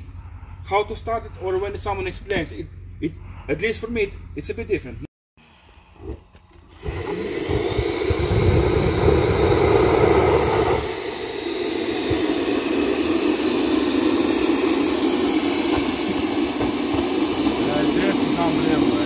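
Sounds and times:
high turbine whine: 5.9s - 19.0s
jet turbine roar: 6.6s - 19.0s.

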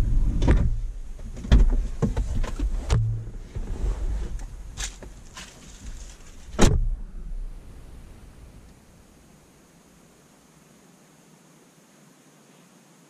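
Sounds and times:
car door slam: 6.5s - 7.0s.

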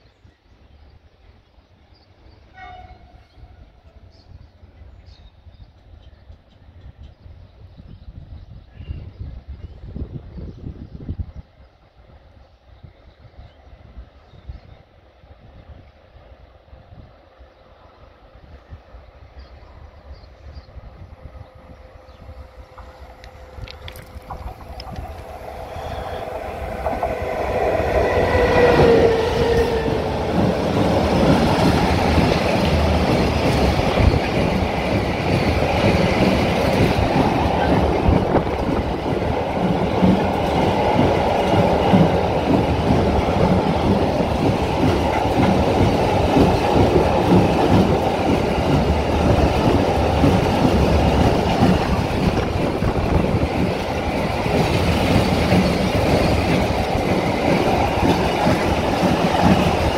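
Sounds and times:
passing train whine: 0.0s - 8.3s, 10.9s - 59.9s
train rumble: 15.4s - 59.9s.

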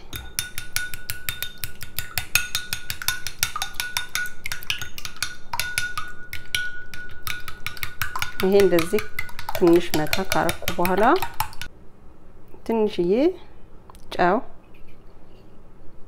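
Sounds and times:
metal spoon beating eggs in bowl: 0.0s - 11.7s.

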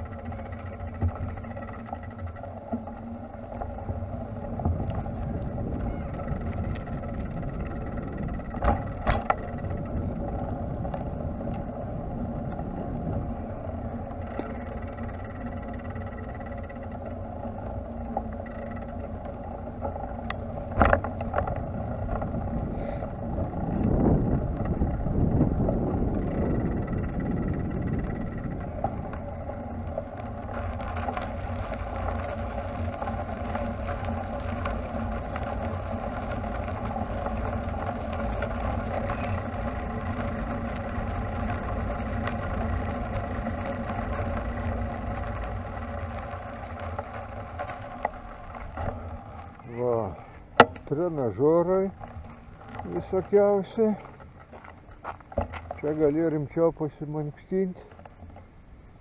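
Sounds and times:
faint steady hum: 0.0s - 59.0s
wind rumbling on microphone: 0.0s - 59.0s.

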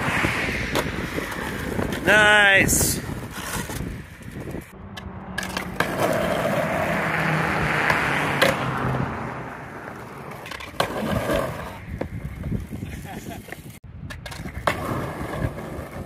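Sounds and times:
skateboard wheels rolling on asphalt: 0.0s - 16.0s
skateboard clattering on pavement: 5.4s - 6.9s, 9.9s - 16.0s.

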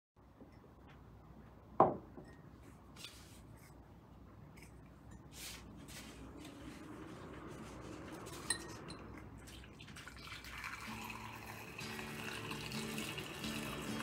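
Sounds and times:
teacup knocking on wooden bench: 1.8s - 2.2s
tea infuser scraping and tapping: 7.4s - 9.3s.

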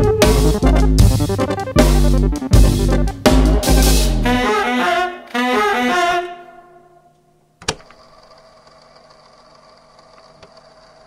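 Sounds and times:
jazz band final chord: 0.0s - 7.1s.

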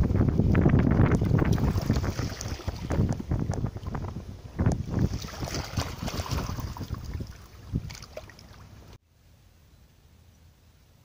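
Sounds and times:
wind buffeting microphone: 0.0s - 9.0s
waves lapping on shore: 1.2s - 9.0s.

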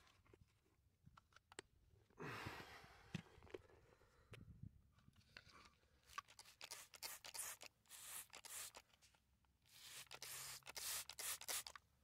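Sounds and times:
spray bottle hissing sprays: 6.2s - 8.8s, 9.7s - 11.8s.

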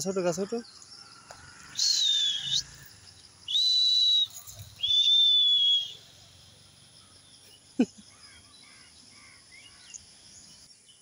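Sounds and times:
person whistling: 3.5s - 6.0s.

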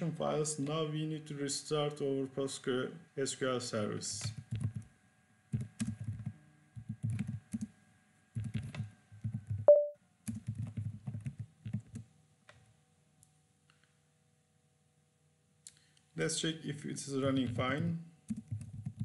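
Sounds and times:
typing on computer keyboard: 4.3s - 4.9s, 5.6s - 7.7s, 8.4s - 12.1s, 17.4s - 19.0s
short tone: 9.7s - 10.0s.

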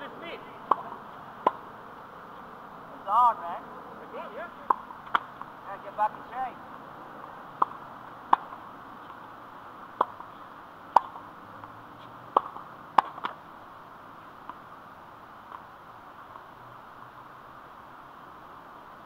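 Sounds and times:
racket hitting tennis ball: 0.0s - 2.5s, 4.2s - 6.2s, 7.2s - 11.3s, 12.0s - 13.4s
tennis ball bouncing on court: 0.0s - 2.5s, 4.0s - 6.4s, 7.2s - 13.4s, 14.4s - 14.6s, 15.5s - 15.7s.

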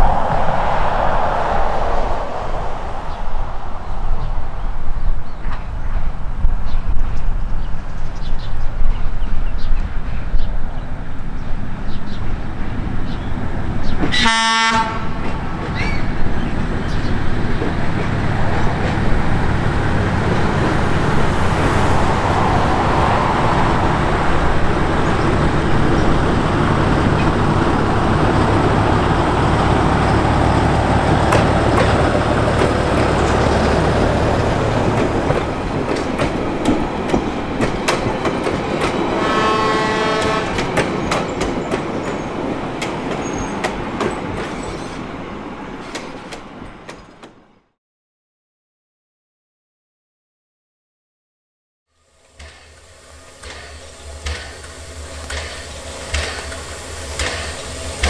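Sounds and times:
diesel locomotive engine rumble: 0.0s - 47.4s, 52.0s - 58.0s
short horn toot: 14.2s - 15.1s
wheels clicking over rail joints: 25.8s - 39.2s.

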